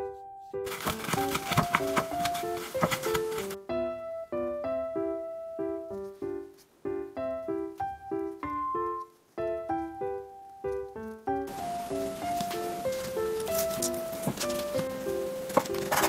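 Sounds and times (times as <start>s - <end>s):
light keyboard melody: 0.0s - 16.0s
soft hiss: 5.0s - 15.8s.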